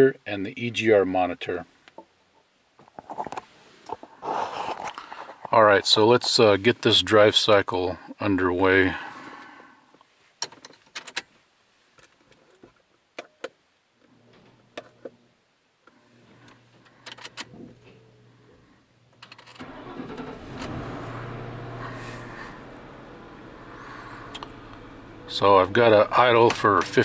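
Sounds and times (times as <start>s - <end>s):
keys and controls clicking: 17.0s - 17.5s
car engine cranking and idling: 19.1s - 27.0s.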